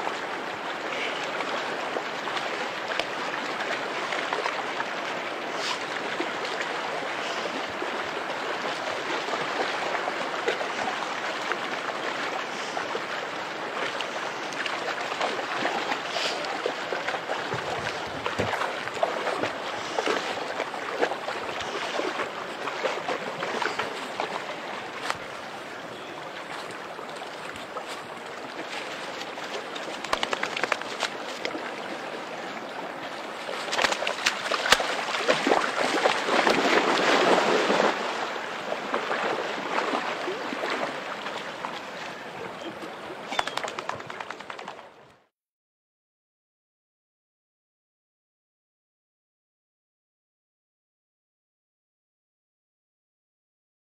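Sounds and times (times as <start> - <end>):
dog splashing in water: 29.4 - 31.6, 33.5 - 38.1.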